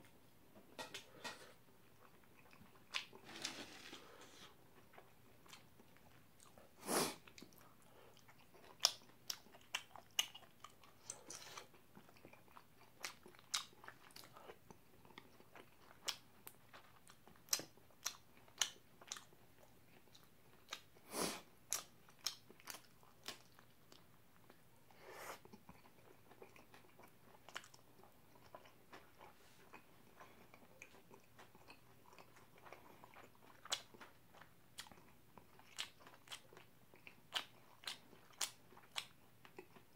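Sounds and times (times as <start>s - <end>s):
wet chewing: 25.4s - 39.9s.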